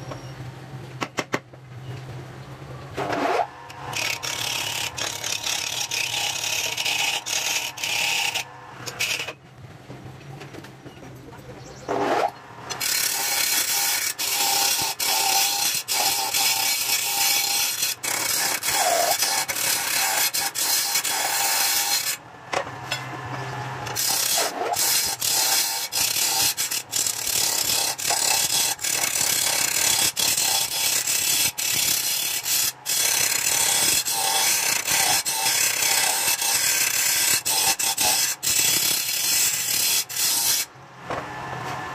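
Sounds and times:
wood lathe tool shaving wood: 3.0 - 9.3, 12.7 - 22.2, 23.9 - 40.7.

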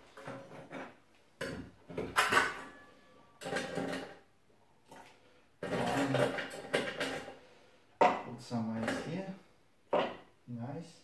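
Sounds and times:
ice cubes clattering into metal tin: 3.4 - 4.2, 5.6 - 7.3.

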